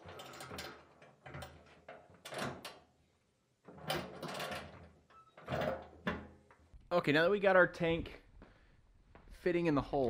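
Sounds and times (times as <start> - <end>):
metal tank clunking and scraping: 3.7 - 6.4.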